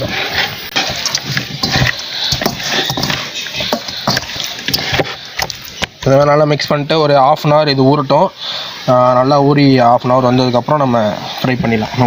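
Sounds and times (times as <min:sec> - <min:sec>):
fish being mixed by hand: 0:00.0 - 0:05.8.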